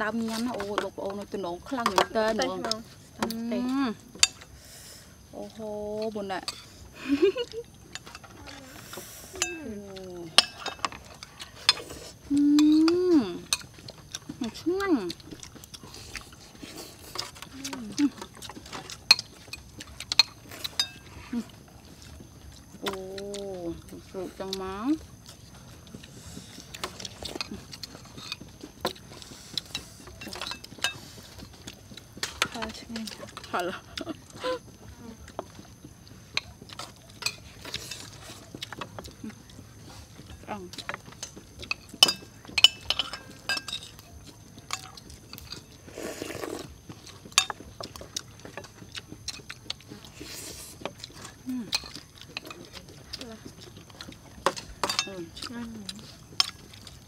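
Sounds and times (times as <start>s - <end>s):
chewing: 0.0s - 57.0s
spoons clinking on plates: 9.4s - 9.7s, 10.3s - 11.8s, 19.1s - 21.1s, 29.6s - 31.1s, 41.2s - 44.1s, 47.3s - 47.6s, 54.4s - 55.2s.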